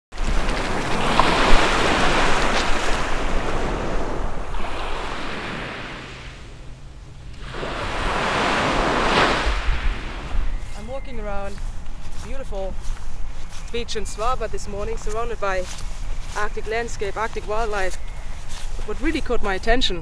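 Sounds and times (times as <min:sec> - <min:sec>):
sea waves on pebble beach: 0:00.1 - 0:06.6, 0:07.4 - 0:10.5
wind: 0:00.1 - 0:20.0.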